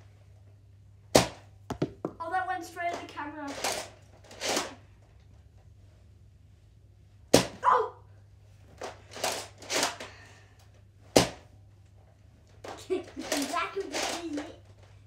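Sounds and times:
toy blaster firing cracks: 0:03.5 - 0:04.8, 0:08.8 - 0:10.1, 0:13.2 - 0:14.4.

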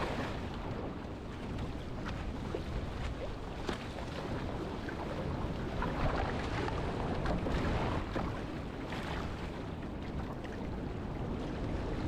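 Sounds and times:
wind buffeting microphone: 0:00.0 - 0:12.0
water splashing against boat hull: 0:01.4 - 0:10.6.

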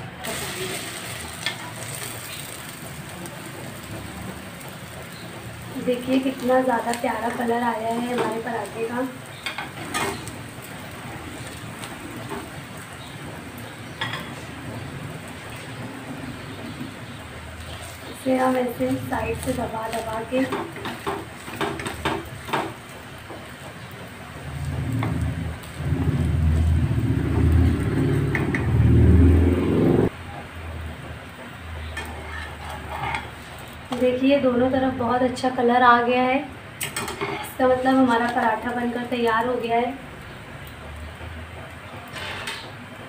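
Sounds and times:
paratha frying in oil: 0:00.0 - 0:43.0
low engine-like rumble: 0:23.4 - 0:33.2.

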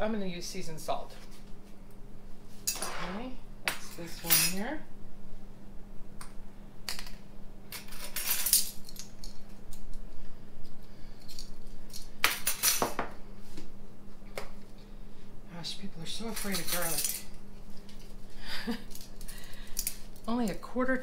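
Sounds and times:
metal spoons clinking: 0:16.3 - 0:17.3.

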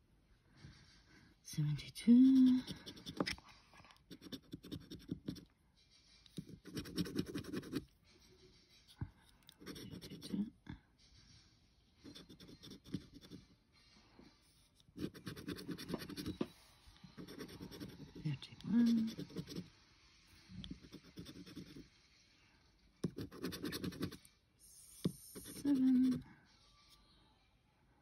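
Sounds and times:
scratching scratchcard coating: 0:02.2 - 0:03.4, 0:04.0 - 0:05.5, 0:06.4 - 0:07.9, 0:09.5 - 0:10.4, 0:12.1 - 0:13.4, 0:14.8 - 0:16.4, 0:17.2 - 0:19.7, 0:20.7 - 0:21.8, 0:23.0 - 0:24.2.

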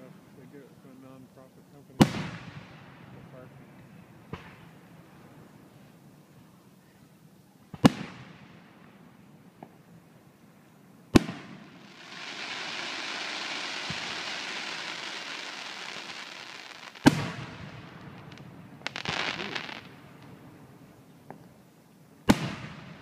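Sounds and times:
fireworks booming: 0:02.0 - 0:04.9, 0:07.7 - 0:08.8, 0:11.1 - 0:21.5, 0:22.2 - 0:23.0
fireworks crackling: 0:07.7 - 0:09.9, 0:11.1 - 0:21.6, 0:22.2 - 0:23.0
sparks hissing: 0:11.8 - 0:17.4, 0:18.3 - 0:19.8.

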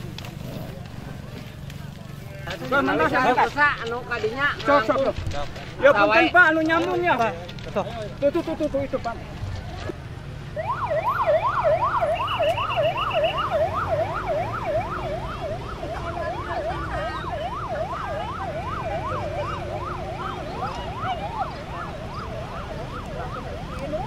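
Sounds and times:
siren yelping: 0:10.6 - 0:24.0.

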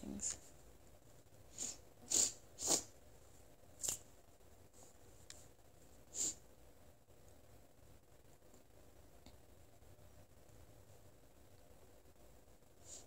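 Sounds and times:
nasal sniffs: 0:01.5 - 0:02.9, 0:06.1 - 0:06.4.

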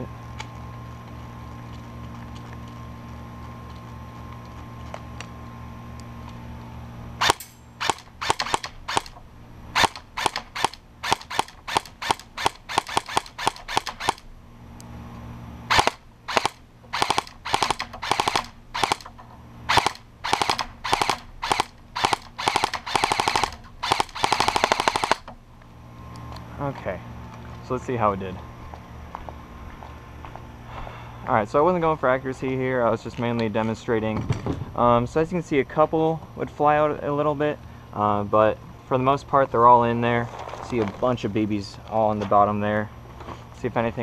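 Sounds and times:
low background hum: 0:00.0 - 0:44.0
airsoft rifle shots: 0:07.2 - 0:09.2, 0:09.8 - 0:14.2, 0:15.7 - 0:25.3.

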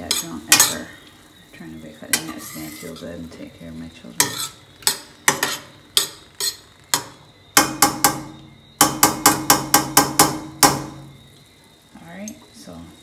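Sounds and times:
metal spoon clanking on skillet: 0:00.0 - 0:00.9, 0:02.1 - 0:03.4, 0:04.2 - 0:11.1.

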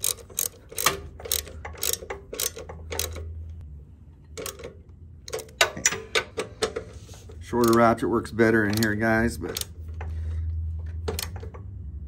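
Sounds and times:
ratchet wrench clicking: 0:00.0 - 0:03.3, 0:07.4 - 0:10.1, 0:11.1 - 0:11.6.

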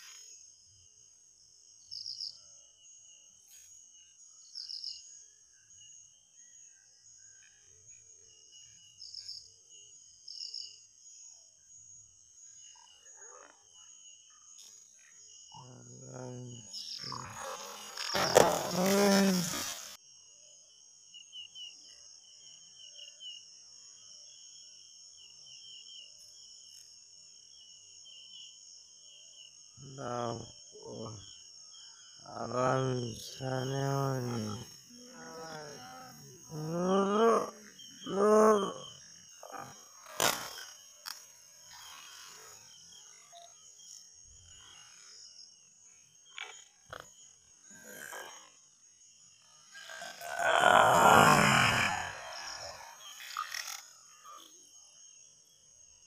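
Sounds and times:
crickets droning: 0:00.0 - 0:56.0
quick insect chirps: 0:00.0 - 0:56.0
person grunting: 0:18.2 - 0:19.8, 0:33.8 - 0:38.8, 0:50.0 - 0:52.8.

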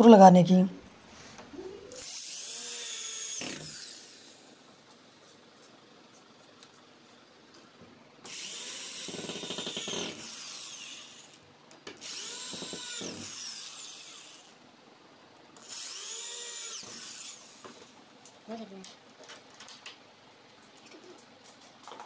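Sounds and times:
cordless drill driving screws: 0:01.9 - 0:04.4, 0:08.3 - 0:11.4, 0:12.0 - 0:14.6, 0:15.6 - 0:17.9.

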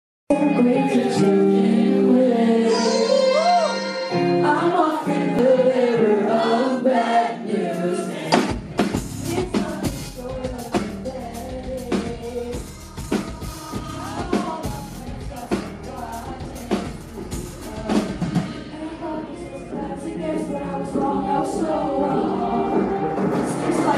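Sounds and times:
woman singing: 0:00.3 - 0:07.7, 0:09.3 - 0:23.9
live rock band: 0:08.2 - 0:18.7
drums and bass beat: 0:08.3 - 0:18.6.

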